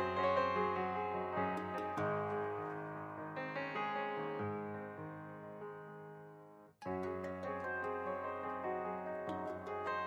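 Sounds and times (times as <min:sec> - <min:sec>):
instrumental music: 0:00.0 - 0:04.7, 0:06.8 - 0:10.0.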